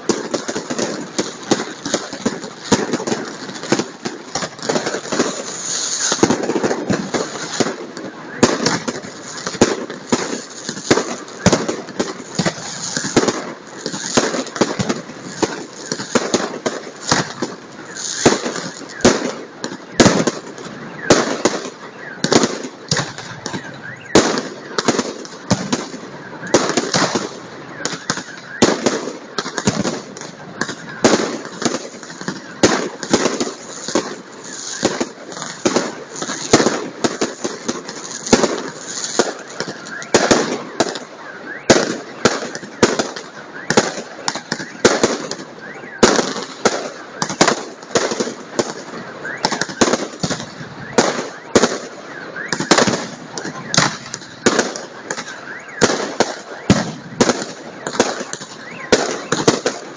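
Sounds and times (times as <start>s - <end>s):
fireworks bangs and crackles: 0.0s - 59.9s.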